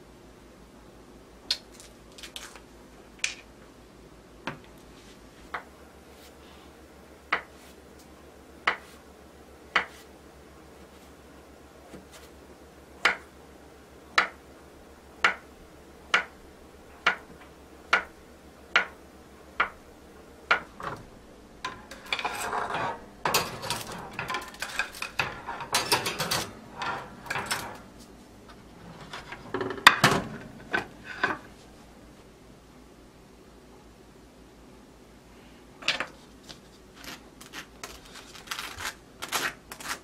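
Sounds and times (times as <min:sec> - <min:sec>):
scraping and clattering: 0:20.5 - 0:31.6.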